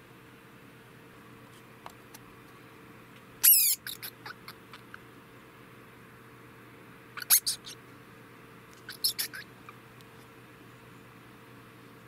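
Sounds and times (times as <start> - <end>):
rodent chirps: 3.4 - 5.0, 7.1 - 7.8, 8.8 - 9.8
rodent high squeaky call: 3.4 - 5.0, 7.2 - 7.8, 8.8 - 9.8.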